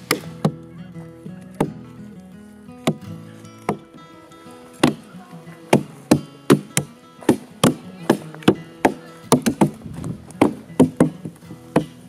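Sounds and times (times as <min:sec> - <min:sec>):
blade chopping wood: 0:00.0 - 0:00.7, 0:02.8 - 0:04.0, 0:04.8 - 0:05.1, 0:05.7 - 0:12.0
acoustic guitar music: 0:00.0 - 0:12.0.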